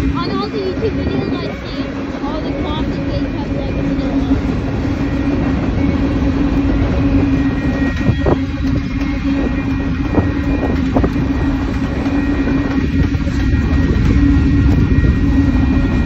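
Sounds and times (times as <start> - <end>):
train wheels rumbling on rail: 0.0 - 16.0
wheels clacking over rail joints: 7.7 - 14.4.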